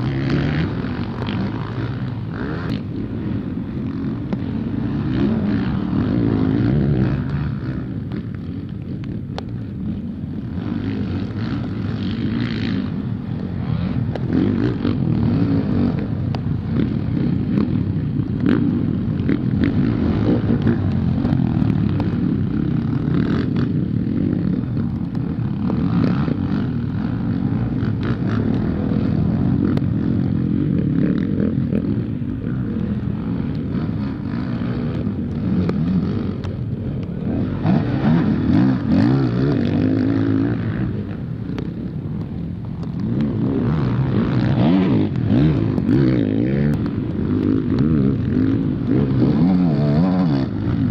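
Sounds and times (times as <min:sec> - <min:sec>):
motocross bike engines revving: 0:00.0 - 0:50.9.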